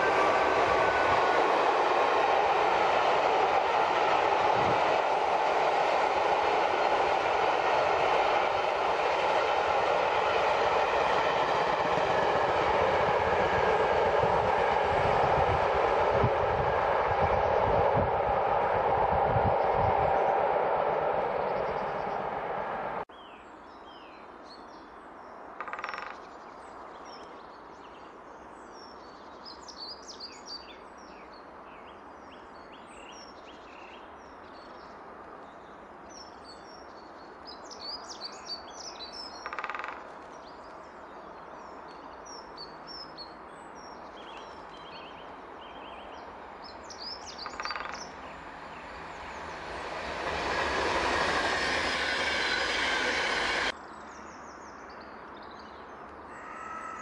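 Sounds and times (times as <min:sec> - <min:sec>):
train rushing: 0:00.0 - 0:23.1, 0:44.0 - 0:53.8
loud bird calls: 0:46.7 - 0:53.7, 0:56.3 - 0:57.0.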